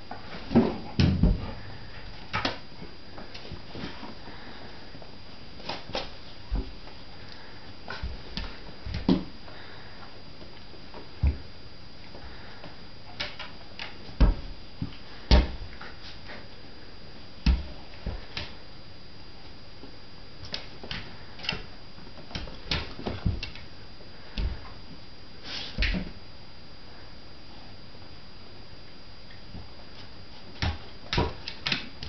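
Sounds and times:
dogs thumping on tiled floor: 22.3 - 23.6.

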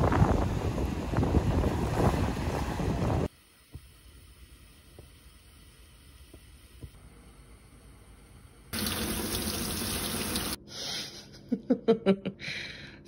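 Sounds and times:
tap water running into strainer: 8.8 - 10.6.

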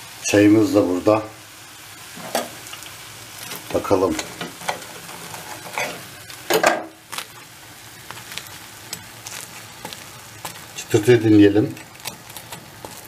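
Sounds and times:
faint steady hiss: 0.0 - 13.0
knife and fork crunching pastry: 11.7 - 13.0.

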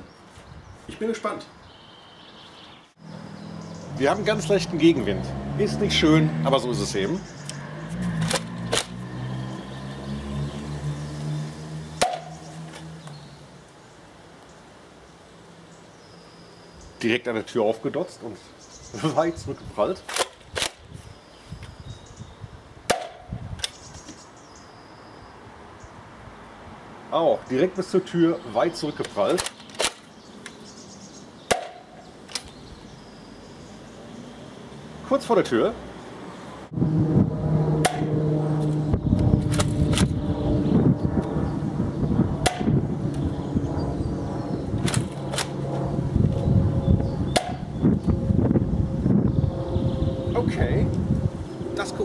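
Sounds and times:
toy blaster firing crack: 8.2 - 9.0, 20.1 - 20.8, 29.3 - 30.1.

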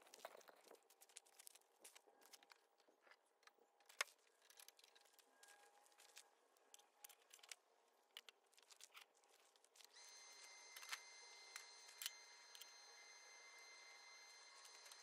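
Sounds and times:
welder electric whine: 9.9 - 15.0.

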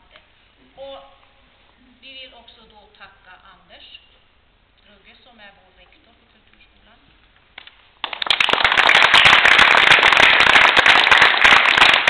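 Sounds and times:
applause: 7.6 - 12.0.

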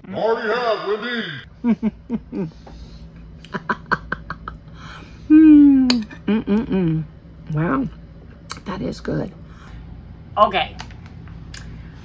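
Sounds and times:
person chuckling: 1.5 - 2.8, 3.4 - 7.0
person humming mmm: 5.2 - 7.1.

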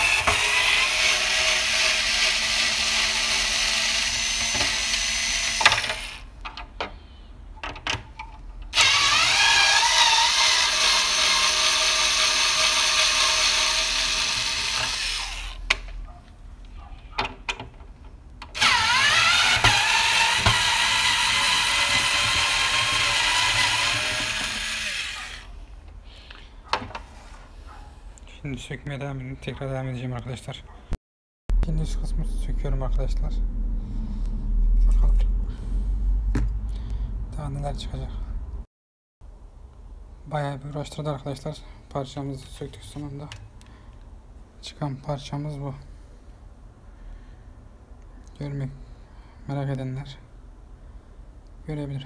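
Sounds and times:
drill-driver whining: 0.0 - 6.3, 8.7 - 15.8, 18.5 - 25.6.

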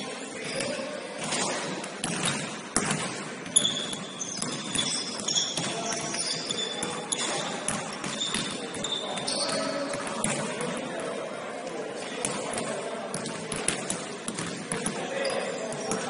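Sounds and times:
sneakers squeaking on floor: 0.4 - 10.4, 14.3 - 16.0
basketball bouncing on wooden court: 2.0 - 10.5, 13.2 - 15.0.

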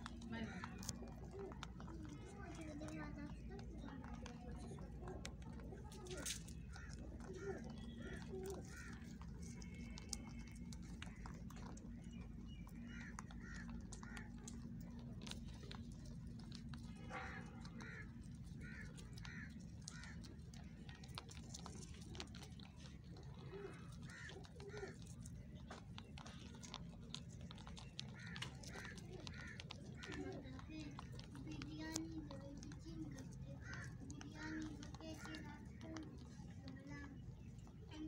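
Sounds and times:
low background hum: 0.0 - 38.0
rabbits crunching feed pellets: 0.0 - 38.0
bird calls: 5.8 - 15.6.

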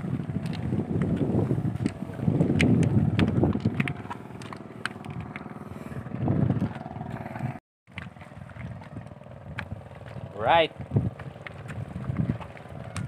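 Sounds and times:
small engine running: 2.7 - 7.6.

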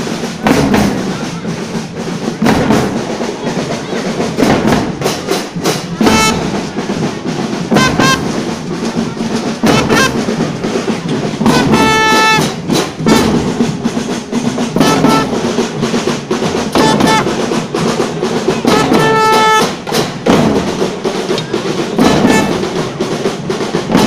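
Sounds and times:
marching band drums: 0.0 - 24.0
short held brass notes: 9.6 - 10.3, 11.5 - 13.4, 14.8 - 15.4, 16.8 - 17.3, 18.7 - 19.8, 22.0 - 22.6.

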